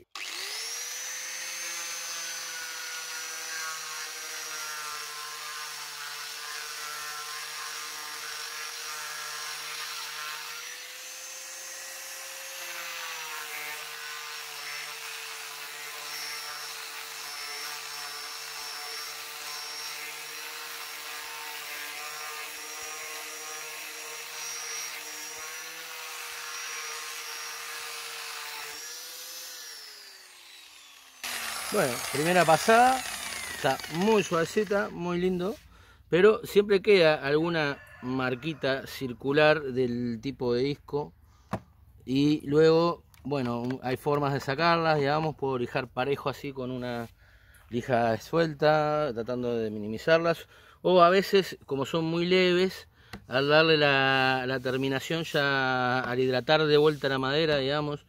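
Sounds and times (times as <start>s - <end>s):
angle grinder whine: 0.0s - 35.6s
sanding disc rasping wood: 0.2s - 35.7s, 53.3s - 57.6s.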